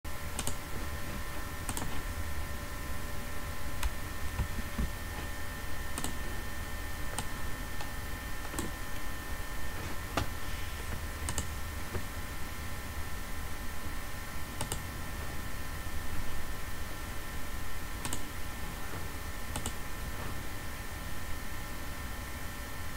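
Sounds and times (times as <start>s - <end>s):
electrical hum: 0.1s - 22.9s
computer mouse clicking: 0.3s - 0.6s, 1.6s - 2.0s, 5.9s - 6.2s, 7.1s - 9.1s, 11.2s - 12.0s, 14.6s - 14.9s, 18.0s - 18.3s, 19.5s - 19.8s.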